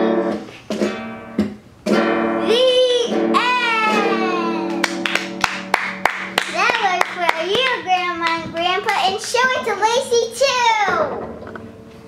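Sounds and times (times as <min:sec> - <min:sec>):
guitar chords strummed: 0:00.0 - 0:08.3.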